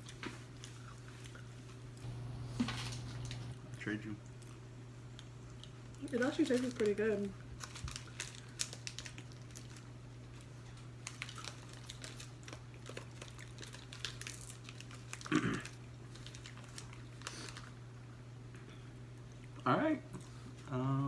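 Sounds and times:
chewing: 0.0s - 2.2s, 3.0s - 6.9s, 7.5s - 20.7s
steady low hum: 0.4s - 8.6s
plastic food packets crinkling: 6.0s - 17.8s.

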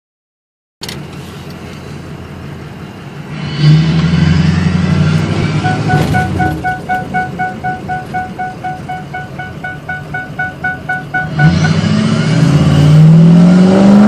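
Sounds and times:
diesel engine revving: 3.2s - 14.0s
dashboard warning chime beeping: 5.6s - 12.0s.

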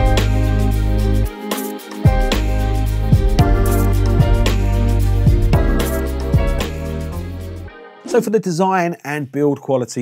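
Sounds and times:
steady bass line: 0.0s - 1.3s, 2.1s - 8.2s
background music sustained notes: 0.0s - 9.2s.

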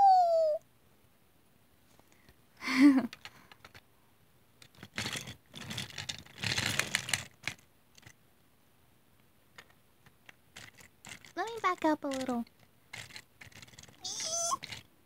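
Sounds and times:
toy train pieces clattering: 3.1s - 3.8s, 4.6s - 8.2s, 9.6s - 14.9s.

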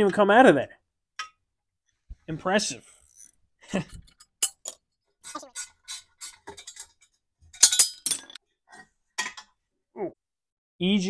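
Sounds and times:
metal engine parts clinking: 4.1s - 4.8s, 6.5s - 8.4s.

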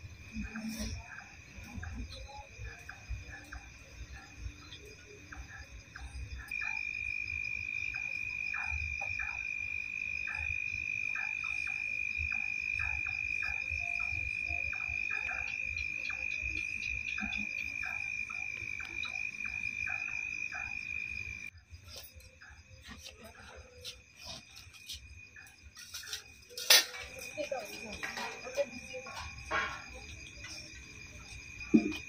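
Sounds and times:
frogs croaking: 0.0s - 32.0s
high-pitched insect trill: 0.0s - 32.0s.

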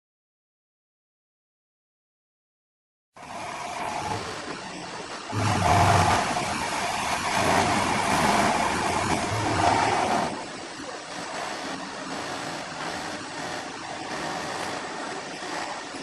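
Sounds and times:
milling machine cutting metal: 3.2s - 16.0s.

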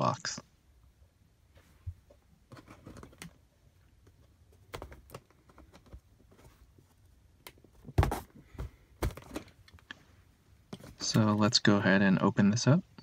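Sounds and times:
cardboard box knocks and rustles: 7.9s - 9.4s.

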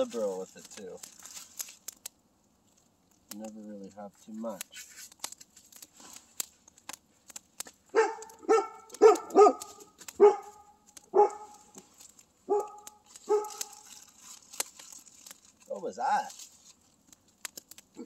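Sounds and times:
plastic bag crinkling: 0.0s - 2.0s, 4.5s - 18.0s
dog barking: 7.9s - 11.6s, 12.5s - 13.8s.

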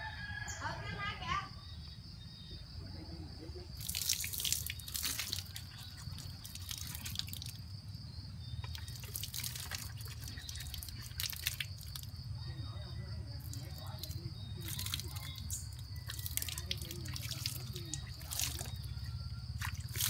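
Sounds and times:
foam dripping and splashing: 3.8s - 7.6s, 8.6s - 12.1s, 13.4s - 18.9s, 19.6s - 20.0s
toothbrush scrubbing teeth: 8.6s - 11.7s.

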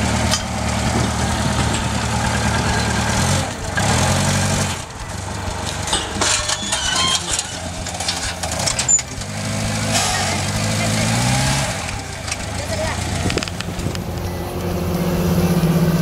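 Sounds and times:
forklift engine running: 0.0s - 16.0s
light squeaks and clicks: 5.9s - 9.2s.

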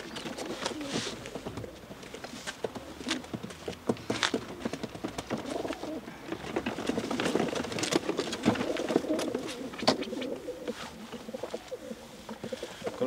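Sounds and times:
pigeons cooing: 0.0s - 3.5s, 4.2s - 13.0s
wooden crate knocking and clattering: 0.1s - 10.0s.

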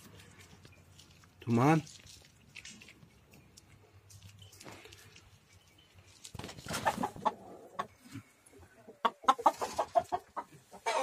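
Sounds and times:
chickens clucking: 6.3s - 11.0s.

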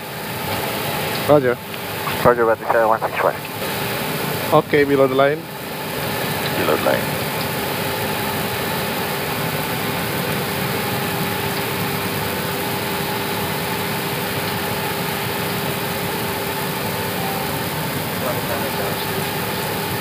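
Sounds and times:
aircraft cockpit engine hum: 1.8s - 3.8s.

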